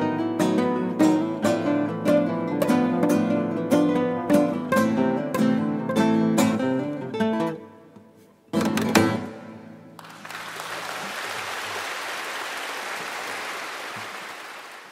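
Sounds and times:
classical guitar chords: 0:00.0 - 0:10.0
audience applause: 0:10.0 - 0:14.9.

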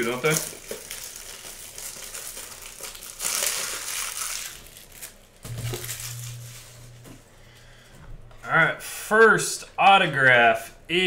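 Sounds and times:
plastic packaging crinkling: 0:00.0 - 0:07.1
low steady hum: 0:04.3 - 0:09.0.

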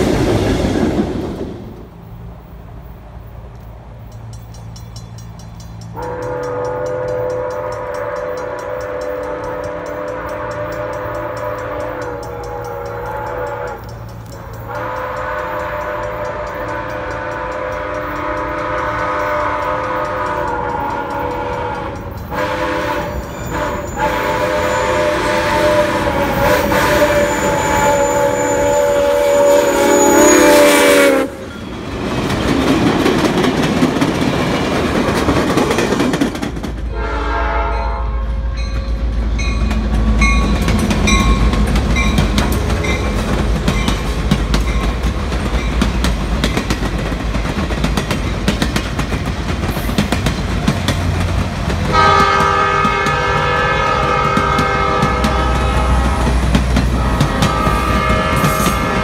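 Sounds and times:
wheels clicking over rail joints: 0:00.0 - 0:30.3, 0:31.4 - 0:37.0, 0:38.6 - 0:59.0
train rumbling past: 0:00.0 - 0:59.0
steam locomotive whistle: 0:05.9 - 0:31.8, 0:36.9 - 0:39.0, 0:51.8 - 0:59.0.

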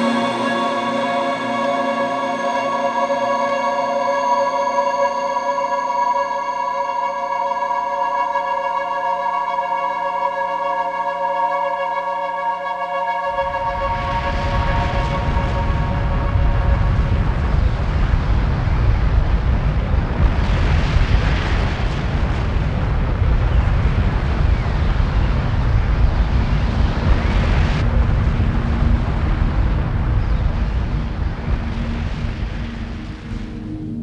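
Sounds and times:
faint music tone: 0:00.0 - 0:19.9
strong wind rushing: 0:13.3 - 0:34.0.

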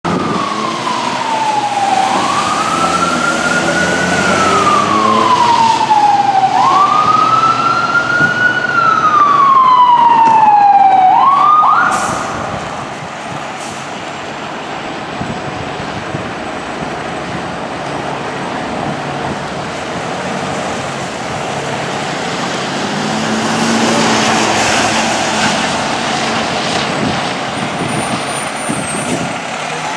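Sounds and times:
fire engine siren: 0:00.0 - 0:29.9.

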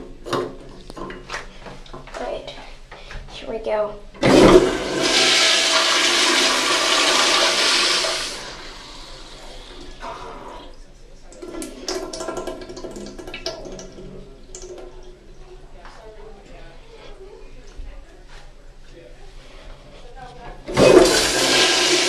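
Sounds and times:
toilet flushing: 0:04.2 - 0:15.3, 0:20.6 - 0:22.0.

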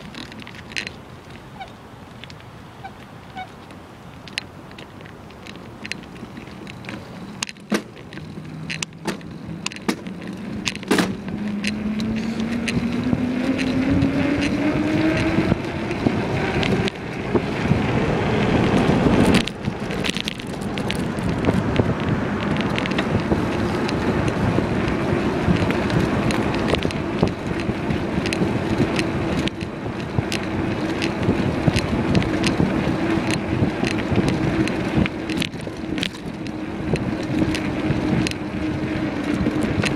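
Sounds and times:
bicycle rattling clicks: 0:00.0 - 0:39.9
bicycle wheel hum: 0:00.0 - 0:39.9
rushing wind noise: 0:00.0 - 0:39.9.

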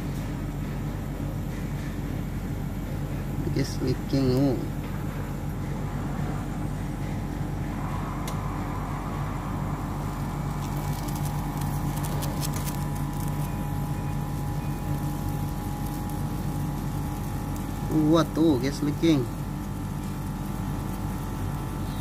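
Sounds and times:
air conditioner unit humming: 0:00.0 - 0:22.0
faint crackling: 0:10.0 - 0:18.0.

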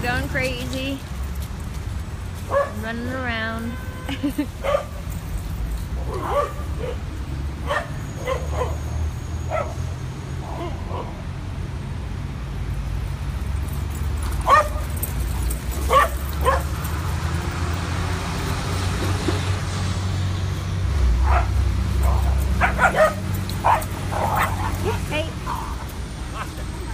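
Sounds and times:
dogs barking and yipping: 0:02.4 - 0:02.9, 0:04.1 - 0:11.4, 0:13.4 - 0:19.4, 0:21.1 - 0:26.9.

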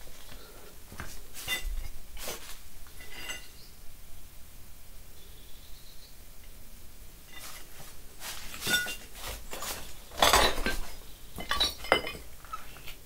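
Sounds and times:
hard objects clinking and knocking: 0:08.5 - 0:12.6.

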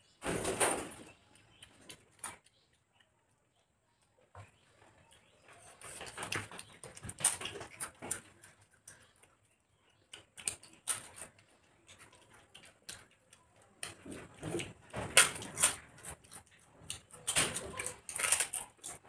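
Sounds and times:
chewing and mouth clicks: 0:01.1 - 0:19.0
crisp food crunching: 0:04.5 - 0:19.0.

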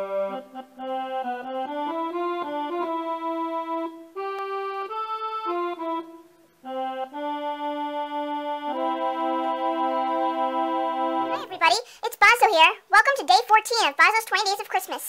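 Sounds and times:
electronic keyboard melody: 0:00.0 - 0:11.6.

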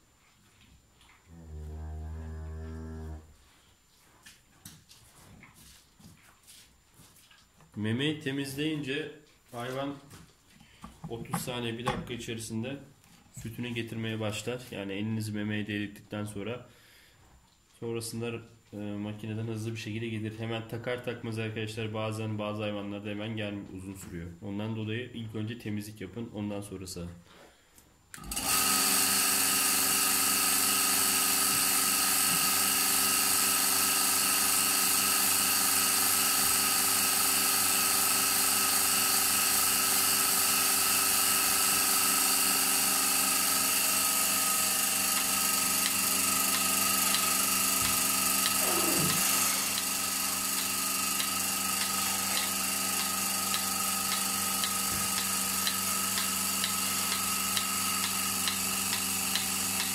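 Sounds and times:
vacuum pump droning: 0:28.2 - 0:59.9
pulsator clicking: 0:44.0 - 0:59.9.

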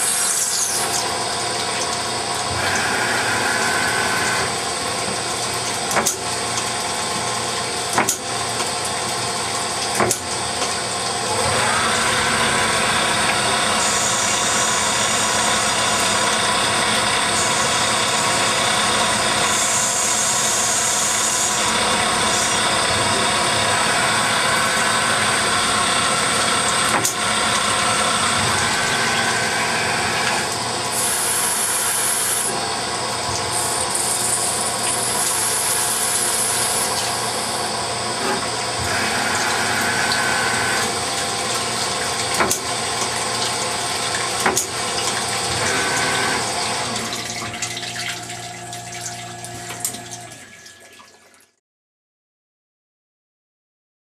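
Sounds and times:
high machine whines: 0:00.0 - 0:04.8, 0:11.2 - 0:51.2
coolant pouring: 0:00.1 - 0:51.6
lathe spindle running: 0:02.4 - 0:04.7, 0:11.2 - 0:47.2.

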